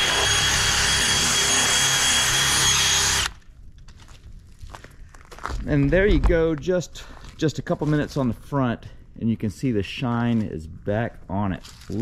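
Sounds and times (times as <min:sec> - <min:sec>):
drill motor whine: 0:00.0 - 0:03.4.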